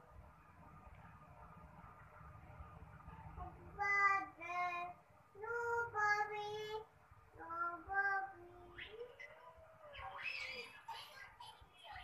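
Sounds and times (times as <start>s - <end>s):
child singing: 3.4s - 9.4s.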